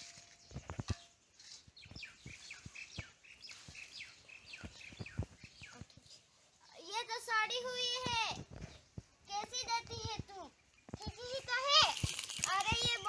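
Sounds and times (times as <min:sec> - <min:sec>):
small bird chirping: 0:00.0 - 0:06.9.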